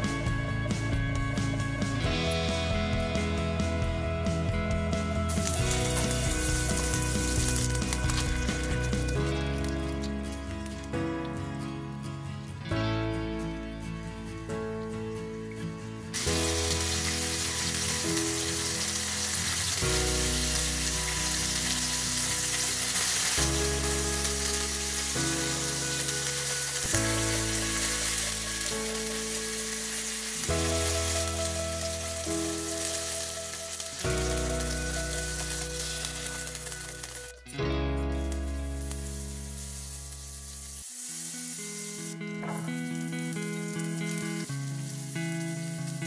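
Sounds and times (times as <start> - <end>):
background music: 0.0 - 46.0
food sizzling in a pan: 5.3 - 11.0, 16.1 - 46.0.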